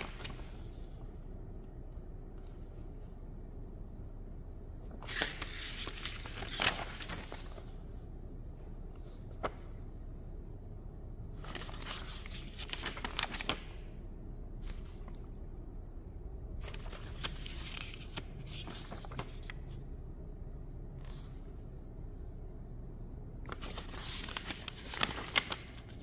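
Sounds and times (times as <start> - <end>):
paper pages rustling: 0.0 - 1.2, 4.8 - 8.0, 11.4 - 13.9, 14.6 - 15.3, 16.6 - 19.8, 23.5 - 26.0.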